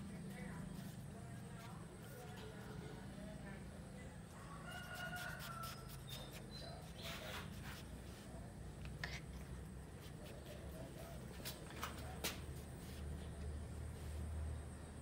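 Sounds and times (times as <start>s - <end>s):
scuffling rasp: 5.0s - 7.9s.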